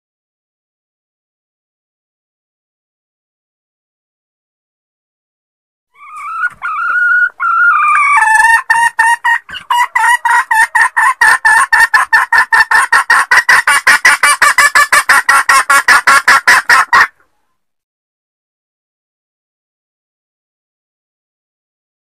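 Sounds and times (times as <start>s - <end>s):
hen cackling: 5.9s - 17.4s.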